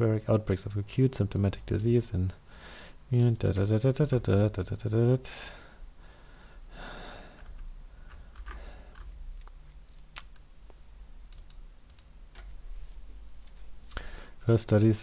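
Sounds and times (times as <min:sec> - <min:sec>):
soft breaths: 0:02.4 - 0:03.1, 0:05.3 - 0:09.8, 0:12.6 - 0:14.5
computer mouse clicks: 0:07.4 - 0:10.5, 0:11.3 - 0:12.5.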